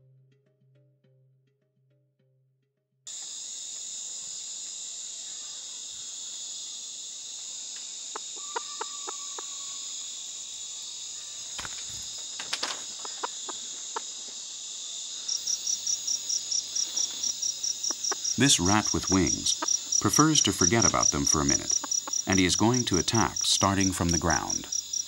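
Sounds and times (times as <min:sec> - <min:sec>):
crickets and insects droning: 0:03.1 - 0:25.0
single cricket chirping: 0:03.1 - 0:25.0
chickens clucking: 0:08.1 - 0:10.3, 0:11.5 - 0:14.5, 0:15.2 - 0:24.7.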